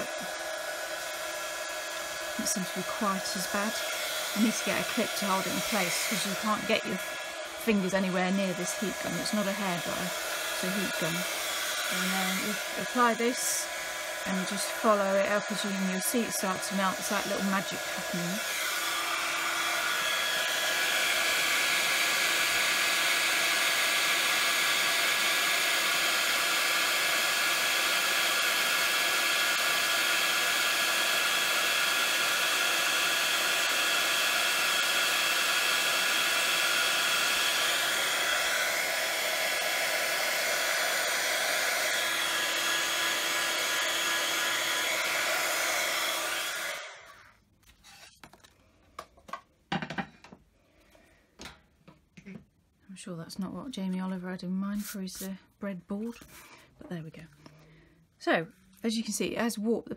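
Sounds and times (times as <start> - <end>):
heat gun blowing: 0.0 - 47.4.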